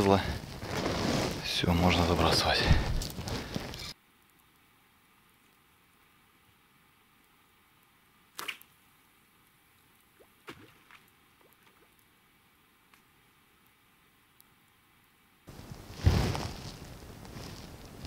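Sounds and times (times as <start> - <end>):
faint clicks and rustles: 0.0 - 4.7, 15.5 - 18.0.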